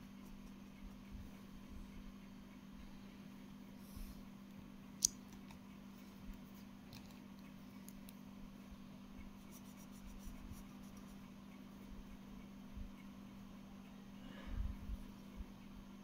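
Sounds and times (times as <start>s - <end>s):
marker scratching on paper: 9.2s - 11.4s.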